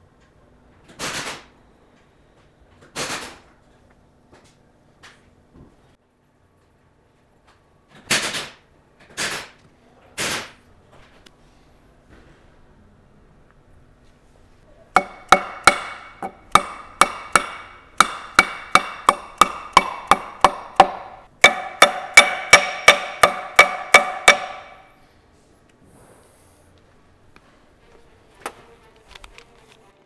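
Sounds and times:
hammer striking steel ring: 15.0s - 25.0s.

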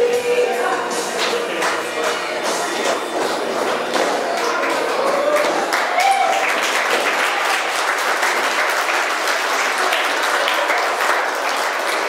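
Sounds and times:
people applauding: 1.1s - 12.0s.

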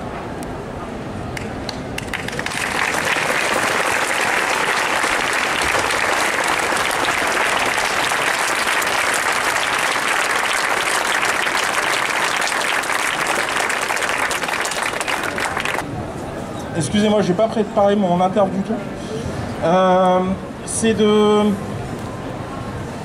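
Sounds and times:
large crowd applauding: 1.7s - 15.8s.

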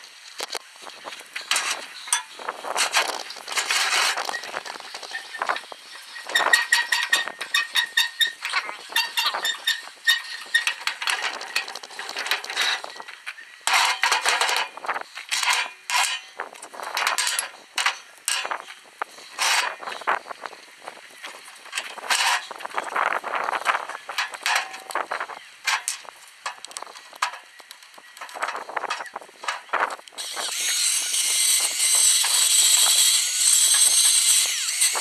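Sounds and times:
metal vise parts clanking: 1.5s - 5.6s, 6.2s - 18.6s, 19.3s - 20.0s, 21.7s - 22.5s, 23.8s - 27.5s.

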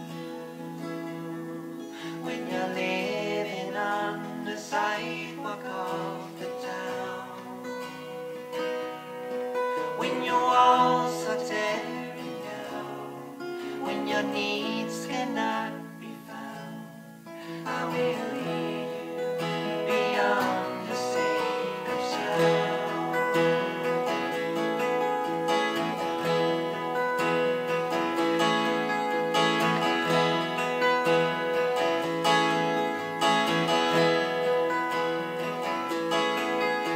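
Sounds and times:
acoustic guitars playing: 0.0s - 36.9s
men singing: 2.0s - 8.3s, 9.7s - 24.1s.

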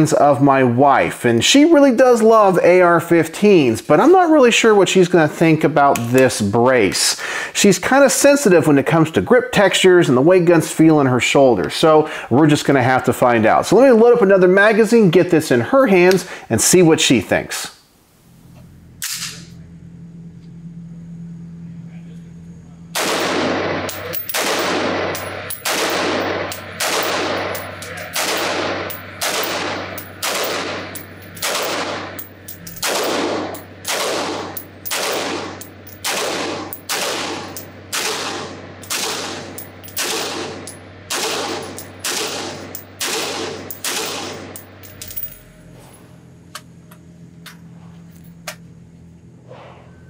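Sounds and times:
pistol shots ringing indoors: 22.9s - 44.8s.

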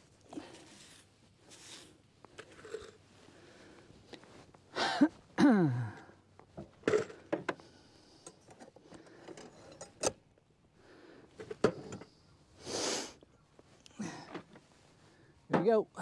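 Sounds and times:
man coughing: 4.8s - 6.0s
man clearing throat: 5.4s - 6.0s.

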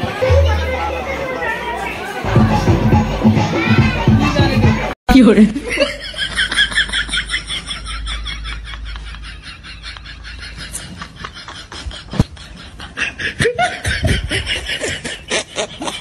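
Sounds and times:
children laughing and giggling: 5.5s - 16.0s.

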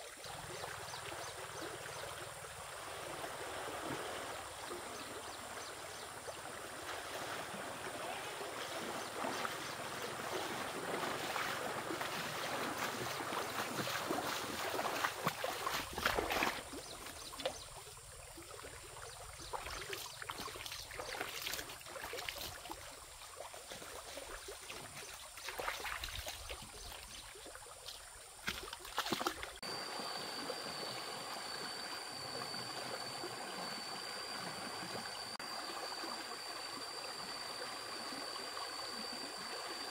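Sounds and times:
stream water rushing and splashing: 0.0s - 39.9s
sharp splashes and knocks: 10.5s - 16.7s, 28.4s - 29.6s.

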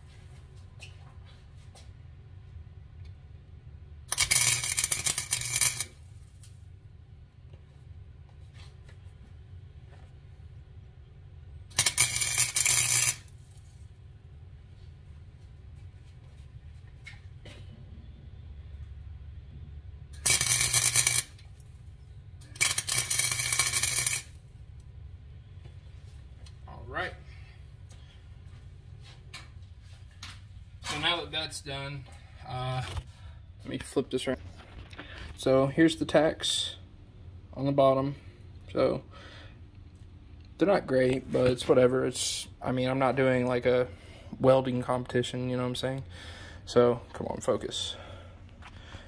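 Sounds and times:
low steady hum: 0.0s - 49.0s
arc welder crackle: 4.0s - 6.7s, 11.6s - 14.0s, 20.0s - 24.9s.

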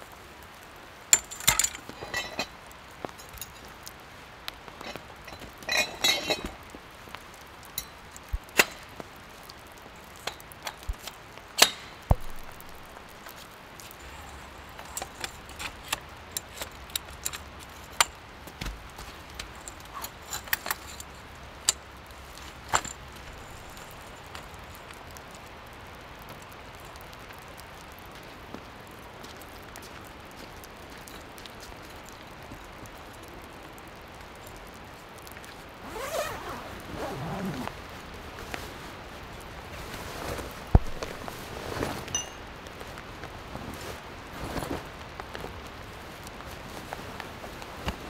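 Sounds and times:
metal tent poles clinking: 1.1s - 3.9s, 4.7s - 6.7s, 7.3s - 9.0s, 9.8s - 24.1s, 35.8s - 37.8s, 39.8s - 42.5s
canvas bag dragged: 35.8s - 37.8s.

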